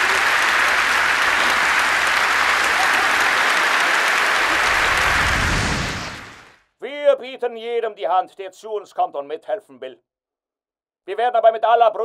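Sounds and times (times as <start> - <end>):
large crowd applauding: 0.0 - 6.6.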